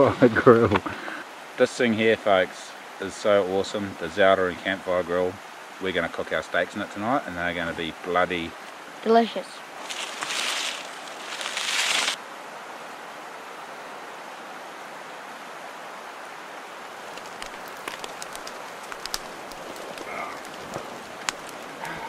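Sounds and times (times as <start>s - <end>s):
steady hiss: 0.0s - 14.4s, 15.0s - 22.0s
burning tinder crackles: 9.7s - 12.2s, 16.9s - 22.0s
dry grass rustling and crunching: 9.8s - 12.2s, 17.1s - 22.0s.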